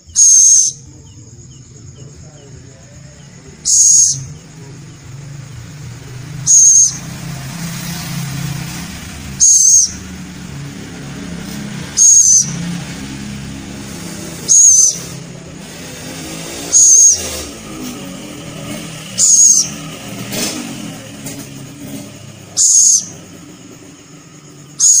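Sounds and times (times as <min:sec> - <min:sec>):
young owl calling shrilly: 0:00.0 - 0:00.9, 0:03.6 - 0:04.4, 0:06.3 - 0:07.1, 0:09.2 - 0:10.2, 0:11.7 - 0:12.8, 0:13.7 - 0:15.7, 0:16.5 - 0:17.6, 0:19.0 - 0:20.0, 0:22.5 - 0:23.3, 0:24.7 - 0:25.0.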